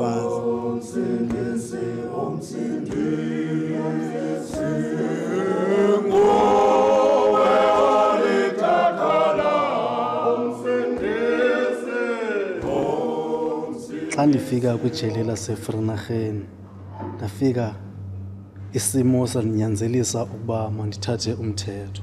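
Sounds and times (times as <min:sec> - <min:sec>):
men singing unaccompanied: 0:00.0 - 0:16.0.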